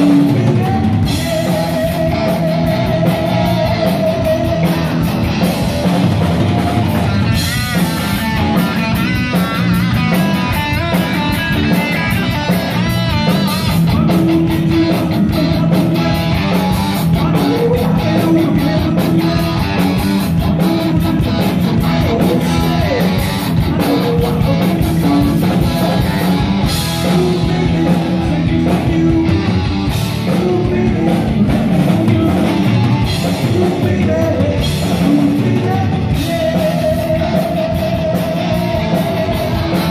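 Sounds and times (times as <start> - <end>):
heavy metal band playing live: 0.0 - 39.9
person singing: 0.0 - 39.9.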